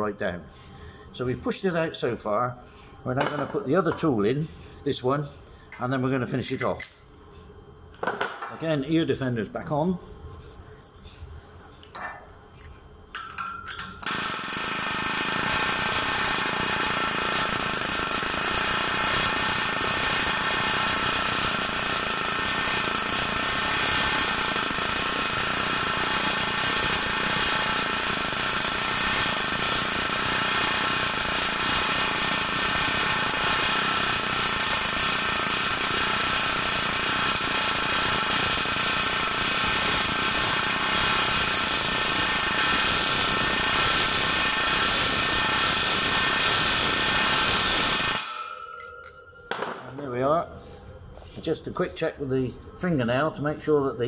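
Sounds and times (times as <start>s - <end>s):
pneumatic hammer hammering: 13.2s - 49.9s.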